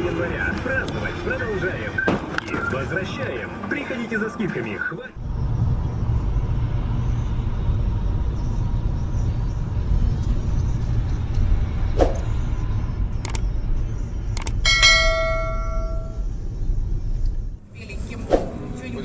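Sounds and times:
car driving rumble: 5.1 - 17.6
sharp clicks: 13.2 - 13.5, 14.3 - 14.6
bell-like ringing tones: 14.6 - 16.2.

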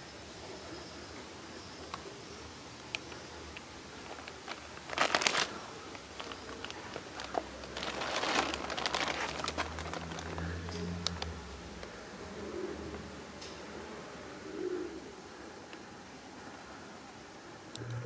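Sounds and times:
plastic bag crinkling: 4.0 - 11.8.

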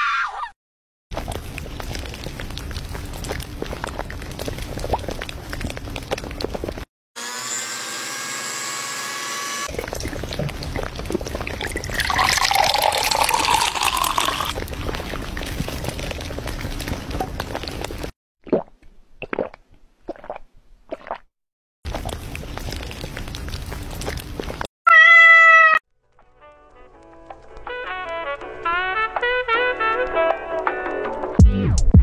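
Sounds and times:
juice pouring: 1.1 - 6.9, 9.7 - 21.2
slurping through a straw: 1.1 - 6.9, 9.6 - 21.3, 21.9 - 24.7
blender running: 7.2 - 9.7.

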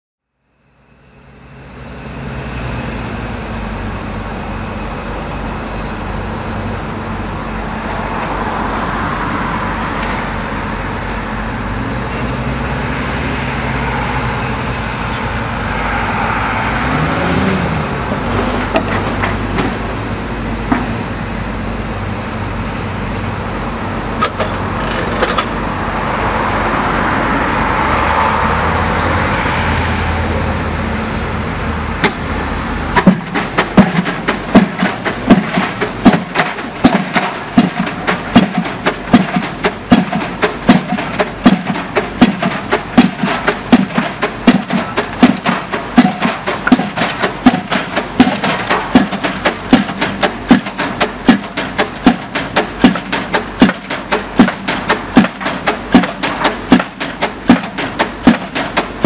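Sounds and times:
piling rig engine droning: 0.4 - 59.0
metallic clicks and clanks: 33.0 - 59.0.

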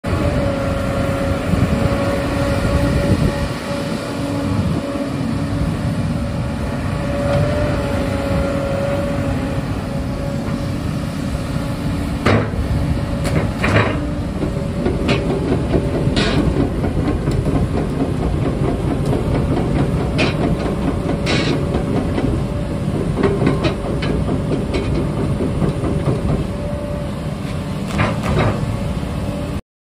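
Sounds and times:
excavator diesel engine running: 0.0 - 29.6.

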